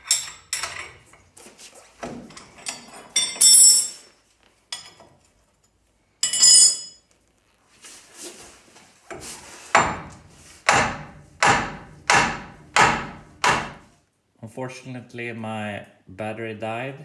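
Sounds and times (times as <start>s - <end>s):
metal tools clattering: 0.0s - 1.3s, 2.2s - 7.1s
hammer striking metal: 9.7s - 13.9s.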